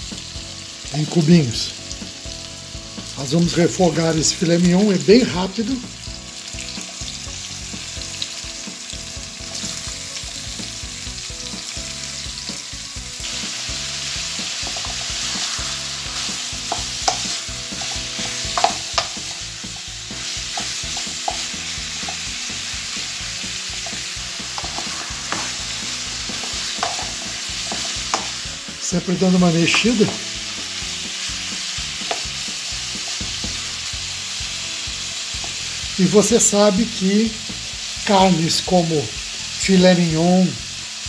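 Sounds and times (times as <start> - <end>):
beef sizzling in hot oil: 0.0 - 41.0
spatula scraping a pan: 13.2 - 28.4.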